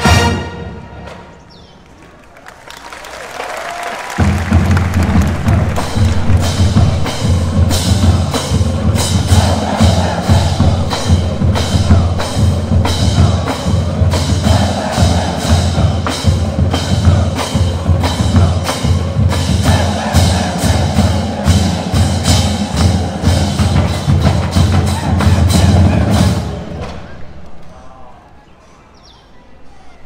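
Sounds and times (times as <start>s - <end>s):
marching band brass: 0.0s - 1.5s, 2.8s - 27.6s
drumline sharp hits: 4.0s - 27.7s.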